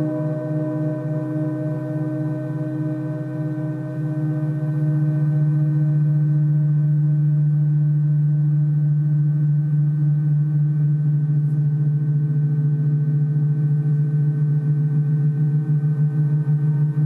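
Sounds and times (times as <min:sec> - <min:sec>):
large gongs ringing: 0:00.0 - 0:06.9.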